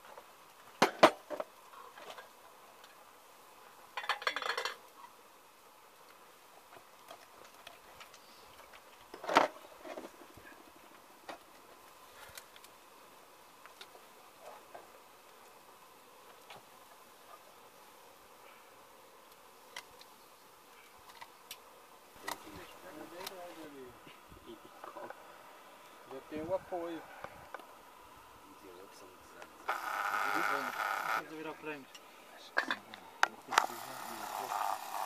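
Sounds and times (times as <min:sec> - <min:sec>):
faint ticks: 0:19.3 - 0:20.2.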